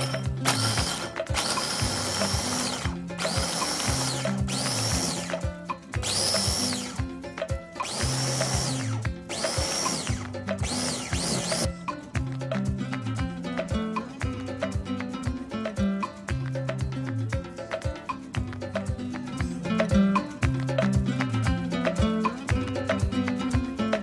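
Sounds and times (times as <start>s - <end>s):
electric chopper chopping nuts: 0.0s - 5.4s, 6.0s - 7.1s, 7.8s - 11.7s.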